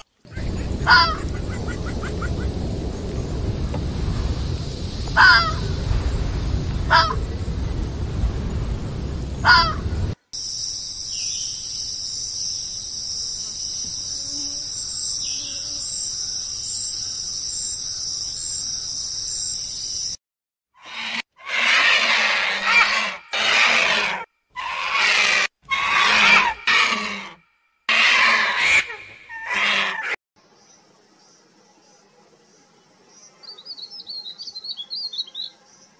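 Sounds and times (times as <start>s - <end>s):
high-pitched insect chorus: 0.3s - 6.6s, 10.4s - 20.2s
low rumbling background: 0.3s - 10.2s.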